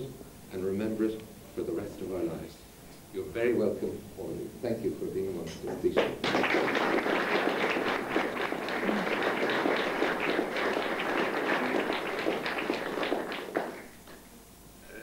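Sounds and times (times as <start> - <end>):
audience applauding: 6.0 - 14.2.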